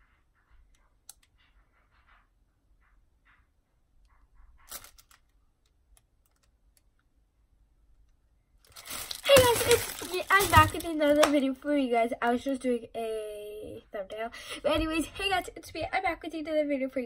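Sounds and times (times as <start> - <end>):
handling rustles: 8.6 - 11.4.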